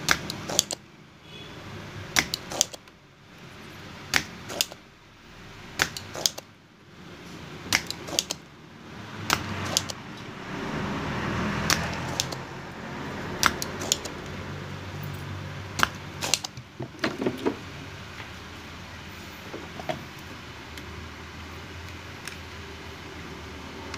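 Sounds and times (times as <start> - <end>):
desoldering pump clicking: 2.2 - 3.0, 4.1 - 4.8, 5.8 - 6.5, 9.3 - 10.0, 11.7 - 12.5, 13.4 - 14.3, 15.8 - 16.7.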